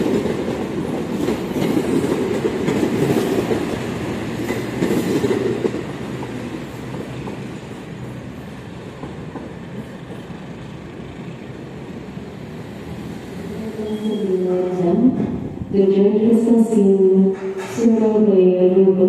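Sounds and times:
train wheels clattering on rails: 0.0 - 11.3, 17.2 - 18.2.

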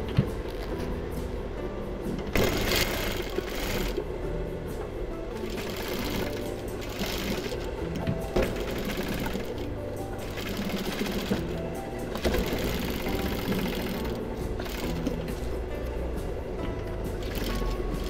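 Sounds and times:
background music: 0.0 - 18.0
sewing machine running: 2.3 - 4.0, 5.4 - 15.4, 17.2 - 18.0.

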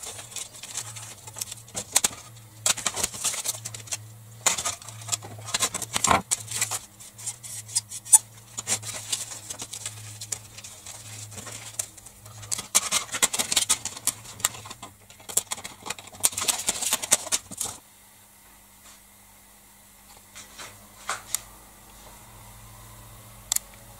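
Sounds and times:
plastic cases clicking and snapping: 0.0 - 6.8, 8.1 - 17.8.

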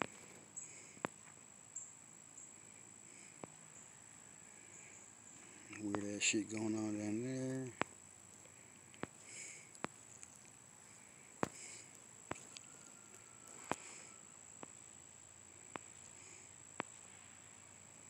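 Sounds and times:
high-pitched whine: 11.6 - 18.0.

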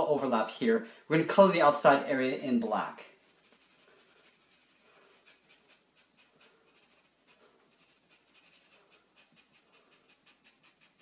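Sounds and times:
marker scratching on paper: 3.2 - 11.0.

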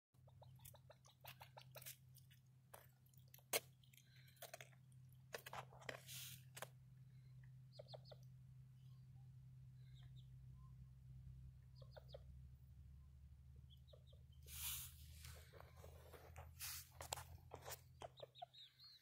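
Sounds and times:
grouse clucking and clicking: 0.2 - 2.2.

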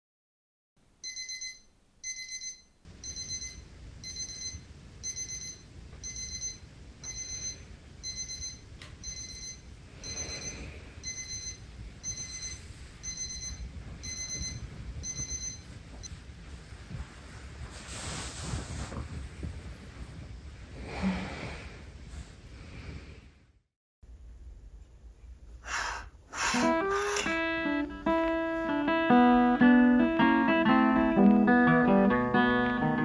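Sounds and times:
electronic alarm beeping: 1.0 - 15.7
low room rumble: 2.9 - 29.7.

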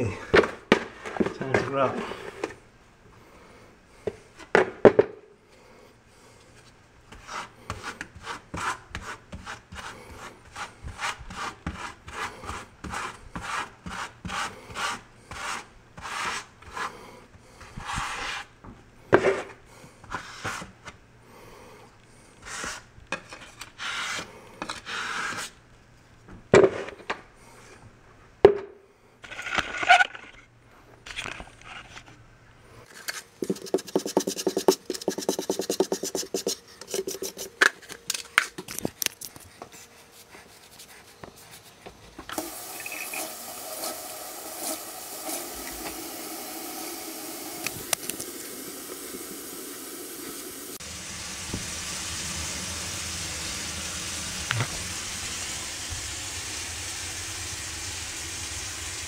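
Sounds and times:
trowel scraping grout on tiles: 7.1 - 17.0, 17.6 - 18.5, 22.4 - 25.6, 32.8 - 38.5.

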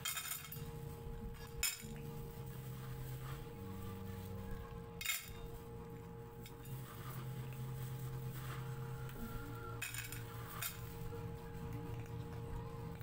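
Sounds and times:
steel bowls clinking: 0.0 - 3.4, 4.6 - 13.0
faint steady hum: 0.0 - 13.0.

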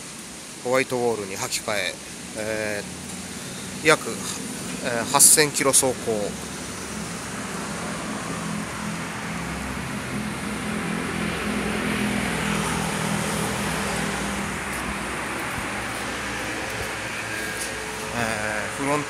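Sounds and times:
steady low hum: 1.9 - 19.0
car driving past: 6.1 - 19.0.

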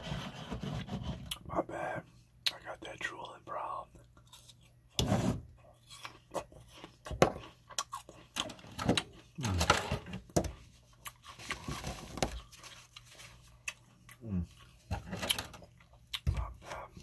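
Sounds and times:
chewing food crunches: 5.8 - 9.5.

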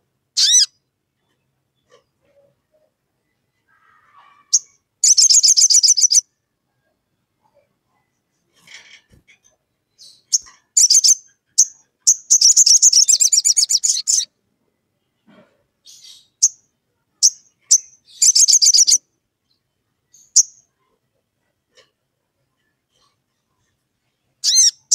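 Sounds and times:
sunbird chips and trills: 0.4 - 0.7, 10.0 - 14.3, 17.2 - 19.0, 24.4 - 24.9.

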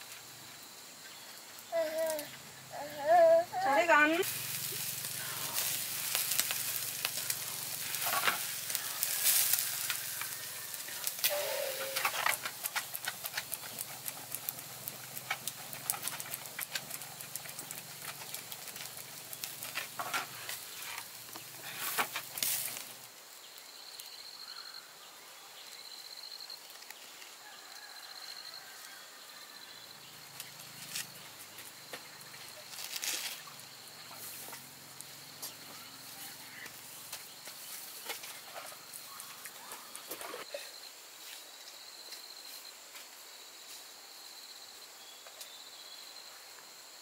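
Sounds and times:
food sizzling and popping: 1.6 - 2.7, 3.6 - 24.1, 30.2 - 40.5.

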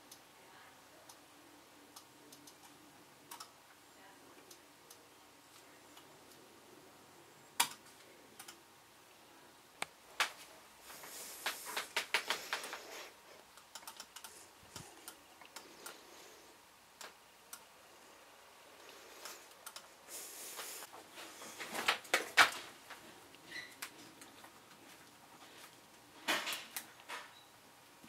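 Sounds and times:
laptop keyboard typing: 2.0 - 3.6, 7.6 - 8.6, 11.5 - 13.0, 13.6 - 14.4.

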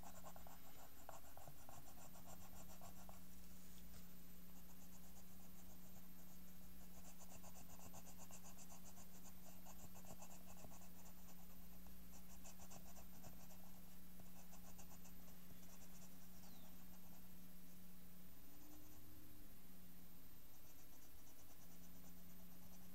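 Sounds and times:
pencil scratching on paper: 0.0 - 3.2, 4.6 - 17.3, 20.7 - 22.9
steady low hum: 0.0 - 22.9.

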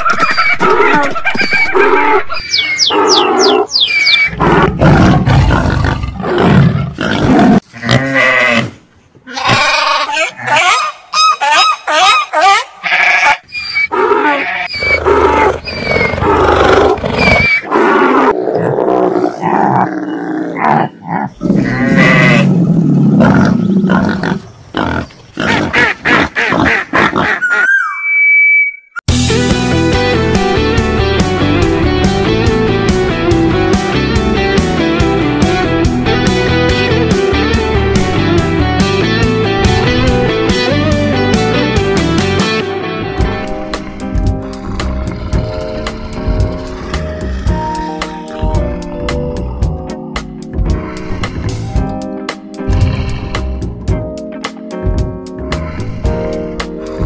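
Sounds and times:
high animal cries: 0.0 - 4.4, 7.8 - 18.4, 19.3 - 22.5, 27.2 - 28.7
animal roars and grunts: 2.8 - 10.8, 13.9 - 25.7, 43.2 - 51.8, 55.4 - 57.0.

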